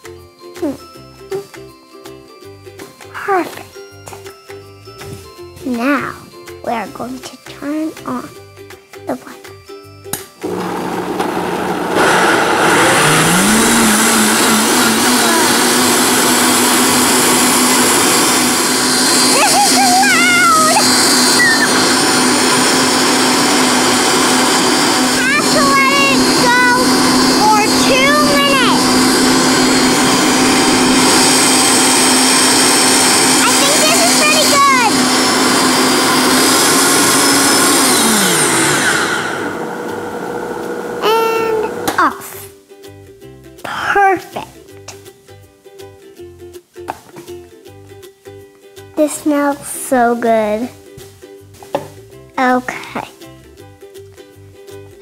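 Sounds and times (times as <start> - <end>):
blender running loud: 10.4 - 42.0.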